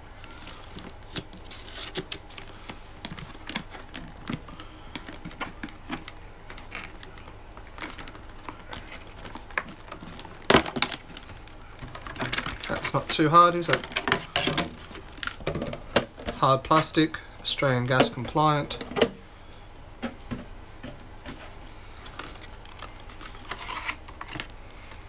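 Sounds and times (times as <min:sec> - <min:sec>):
plastic clicks and crackles: 0:00.2 - 0:17.0, 0:22.0 - 0:25.0
knife cutting plastic packaging: 0:00.3 - 0:17.0.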